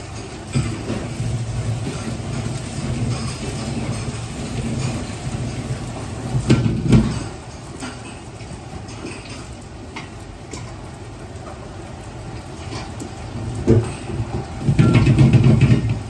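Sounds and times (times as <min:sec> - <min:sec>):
wok and ladle clanking: 0:00.0 - 0:08.3, 0:14.6 - 0:16.0
wok burner roaring: 0:00.0 - 0:16.0.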